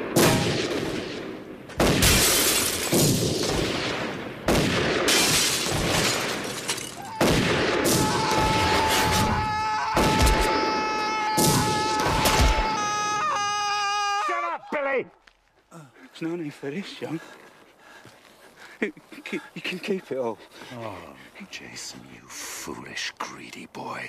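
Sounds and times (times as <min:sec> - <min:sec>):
loud gunshots: 0:00.0 - 0:06.5, 0:07.2 - 0:09.3
window glass shattering: 0:02.2 - 0:03.0, 0:05.2 - 0:07.0.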